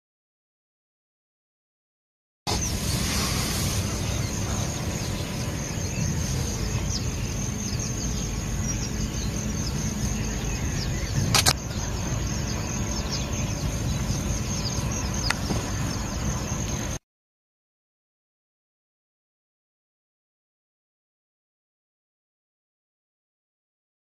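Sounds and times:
low outdoor rumble: 0:02.5 - 0:17.0
sharp click: 0:11.3 - 0:11.6.

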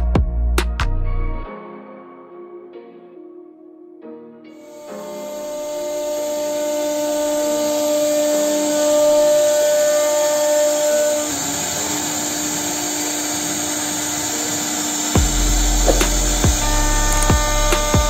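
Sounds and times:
router spindle whine: 0:04.6 - 0:18.0
bit cutting wood hiss: 0:04.7 - 0:18.0.

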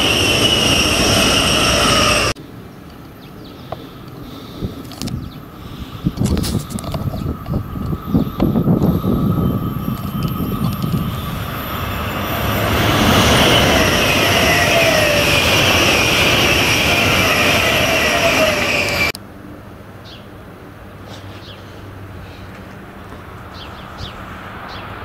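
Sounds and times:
train passing at speed: 0:00.0 - 0:02.8, 0:04.1 - 0:19.2, 0:20.4 - 0:25.0
train whine: 0:00.0 - 0:19.2.

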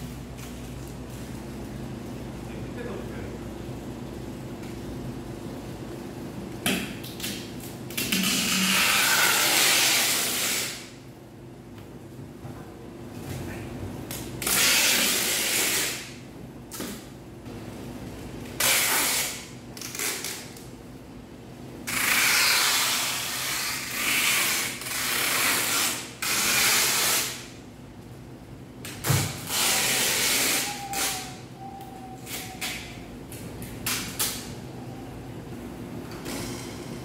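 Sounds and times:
tape pulled off roll rasping: 0:07.0 - 0:10.9, 0:14.1 - 0:17.0, 0:18.6 - 0:20.7, 0:21.9 - 0:27.5, 0:28.9 - 0:31.4.

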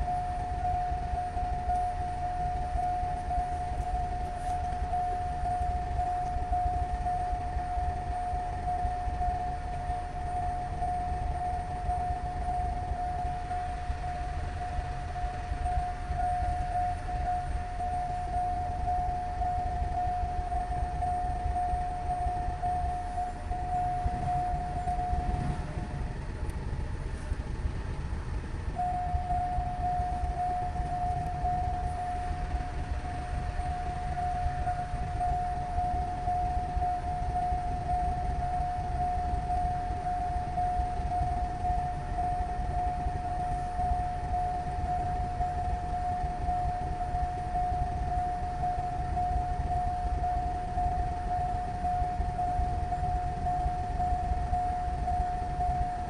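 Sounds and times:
constant low rumble: 0:00.0 - 0:56.0
steady high tone: 0:00.0 - 0:56.0.

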